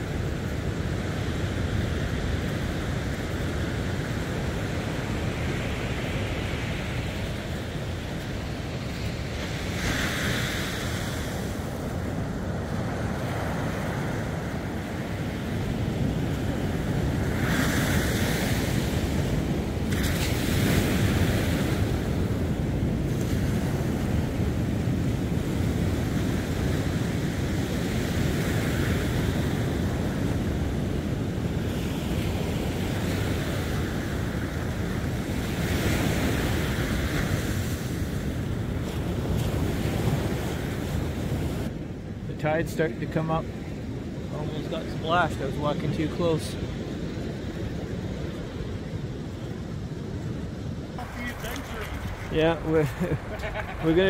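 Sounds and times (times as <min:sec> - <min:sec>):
ocean surf on beach: 0:00.0 - 0:54.0
wind buffeting microphone: 0:43.6 - 0:54.0.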